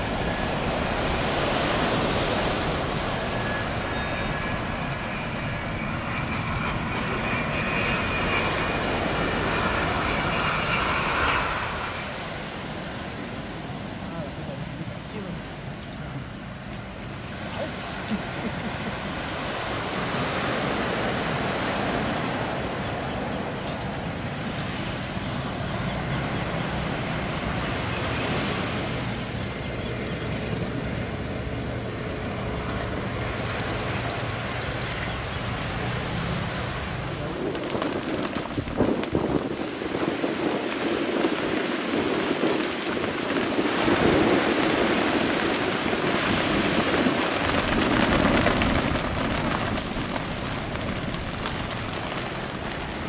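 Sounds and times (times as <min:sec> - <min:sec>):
jet engines humming: 0:00.0 - 0:53.0
wind buffeting microphone: 0:00.0 - 0:53.0
surf breaking: 0:33.0 - 0:53.0.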